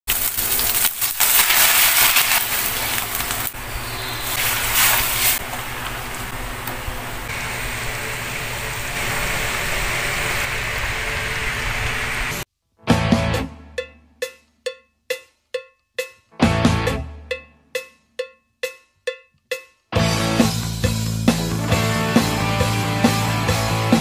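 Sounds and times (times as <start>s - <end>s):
food sizzling in a wok: 0.1s - 12.4s.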